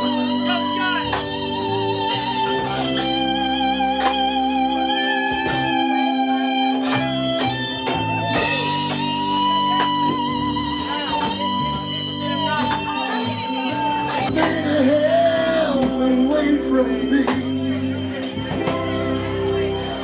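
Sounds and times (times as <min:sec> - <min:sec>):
bass line: 0:00.0 - 0:20.0
drums: 0:00.0 - 0:20.0
electric guitar with vibrato: 0:00.0 - 0:20.0.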